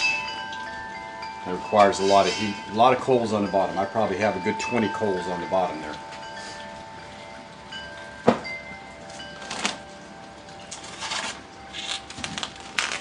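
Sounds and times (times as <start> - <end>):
wind chimes ringing: 0.0 - 12.8
rustling handling noises: 4.4 - 13.0.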